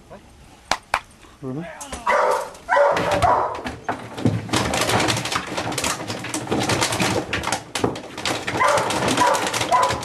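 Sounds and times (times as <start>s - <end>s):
dog rummaging through objects: 2.1s - 10.0s.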